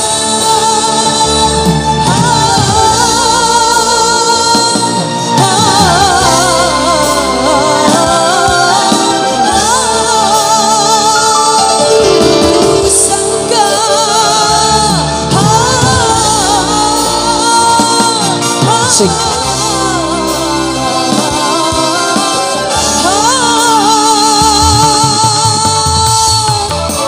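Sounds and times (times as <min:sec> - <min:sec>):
full band accompaniment: 0:00.0 - 0:27.0
young man singing through pa: 0:12.8 - 0:27.0.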